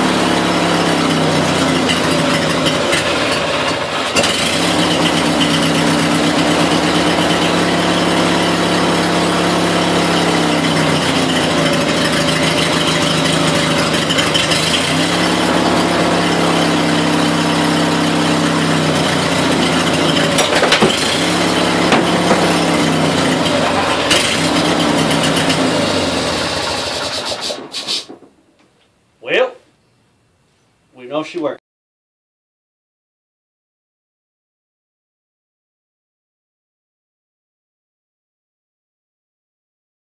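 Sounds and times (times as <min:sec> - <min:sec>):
small engine running: 0:00.0 - 0:28.2.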